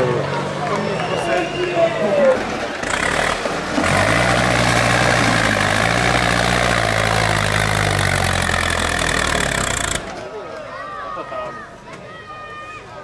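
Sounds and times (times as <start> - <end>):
tractor diesel engine under load: 0.0 - 10.3.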